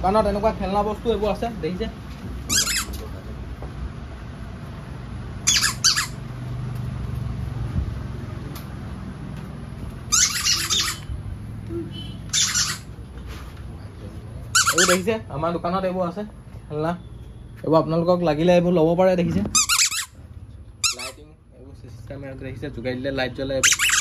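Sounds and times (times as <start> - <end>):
squeaky dog toy squeaking: 2.4 - 3.2, 5.4 - 6.3, 10.0 - 11.2, 12.0 - 13.0, 14.5 - 15.2, 19.5 - 21.4, 23.6 - 24.0.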